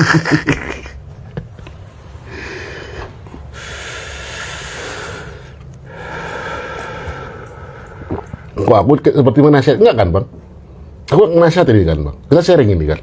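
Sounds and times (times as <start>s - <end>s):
low steady hum: 0.0s - 13.0s
person breathing out heavily: 2.2s - 8.6s.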